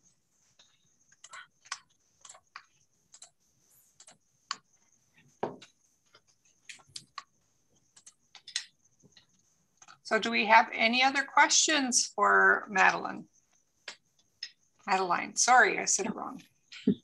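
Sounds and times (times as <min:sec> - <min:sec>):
typing on computer keyboard: 0:01.1 - 0:03.4, 0:04.0 - 0:04.6, 0:07.9 - 0:08.7.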